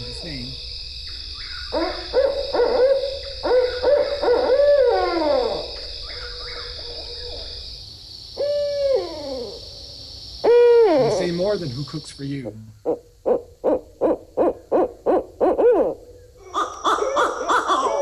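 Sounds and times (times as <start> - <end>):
owls hooting: 1.3 - 7.6, 8.4 - 9.8, 10.4 - 11.4, 12.8 - 18.0.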